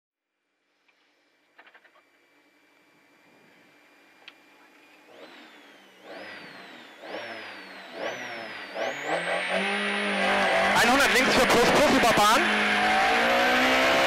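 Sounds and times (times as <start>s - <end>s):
car engine revving: 5.1s - 14.0s.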